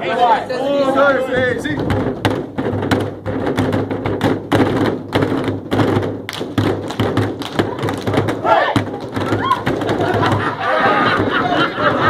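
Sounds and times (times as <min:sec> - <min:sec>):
fists beating on tables: 0:01.4 - 0:11.6
hands clapping: 0:05.1 - 0:12.0.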